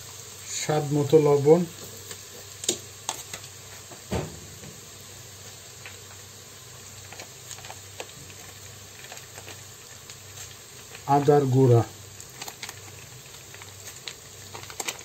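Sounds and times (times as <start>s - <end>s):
onions and spices sizzling: 0.0s - 15.0s.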